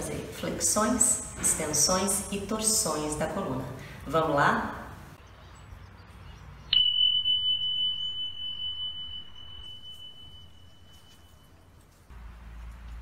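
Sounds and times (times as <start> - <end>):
high chime ringing: 6.7 - 11.9.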